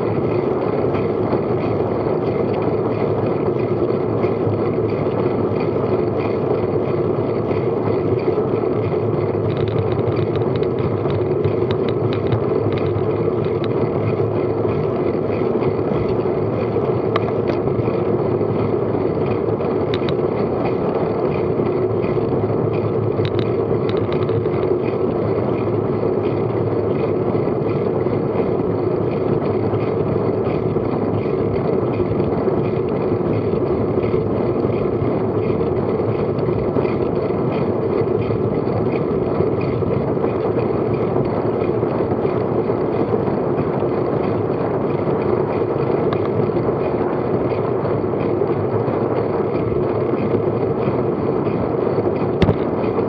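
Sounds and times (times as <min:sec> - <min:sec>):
bicycle tyre and road noise: 0:00.0 - 0:53.0
wind rushing on microphone: 0:00.0 - 0:53.0
faint ticks: 0:09.4 - 0:14.2, 0:22.8 - 0:25.1.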